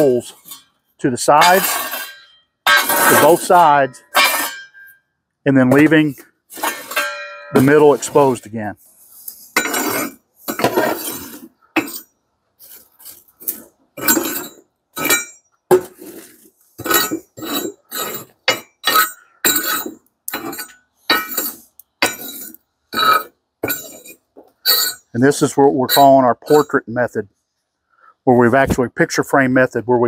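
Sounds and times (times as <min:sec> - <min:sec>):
charcoal lumps clinking on steel: 0:00.0 - 0:08.6, 0:12.6 - 0:26.8
metal shovel scraping steel: 0:00.0 - 0:26.8.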